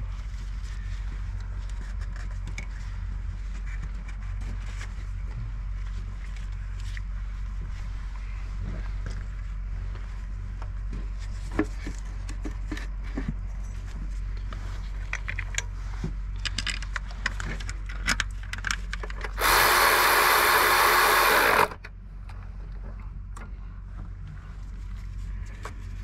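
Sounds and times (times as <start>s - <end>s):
cordless electric ratchet running: 19.4s - 21.8s.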